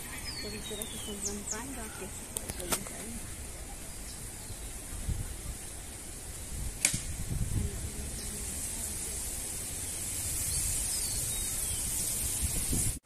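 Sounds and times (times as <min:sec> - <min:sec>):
steady high hiss: 0:00.0 - 0:13.0
wind buffeting microphone: 0:00.0 - 0:13.0
sharp click: 0:06.8 - 0:07.1.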